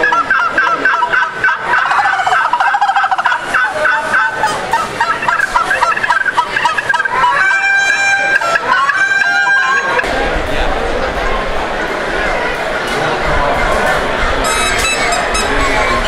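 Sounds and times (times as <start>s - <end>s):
friction turkey call scraping: 0.0s - 10.1s, 14.4s - 16.0s
mouth turkey call: 0.0s - 10.1s, 14.4s - 16.0s.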